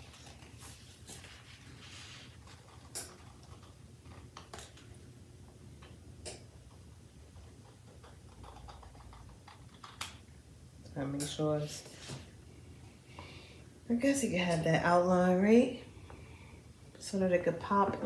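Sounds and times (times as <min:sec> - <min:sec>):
soft rustling: 0:00.0 - 0:02.7
low steady hum: 0:00.0 - 0:18.0.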